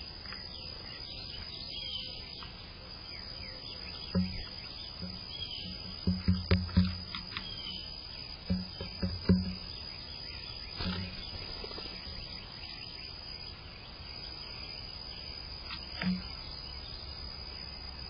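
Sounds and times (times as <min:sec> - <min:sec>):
bird bill knocking on wood: 0:04.1 - 0:07.6, 0:08.5 - 0:09.8, 0:10.8 - 0:11.4, 0:15.7 - 0:16.3.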